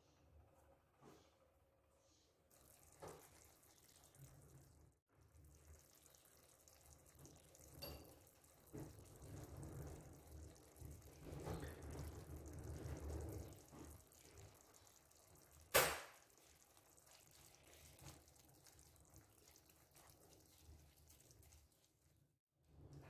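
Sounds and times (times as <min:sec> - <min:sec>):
food sizzling in a frying pan: 0:05.4 - 0:22.0.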